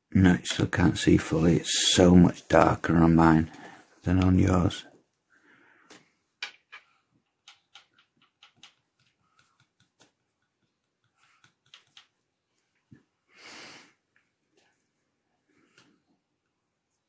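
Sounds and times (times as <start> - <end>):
person breathing: 3.5 - 4.0, 5.3 - 6.2, 13.2 - 14.1.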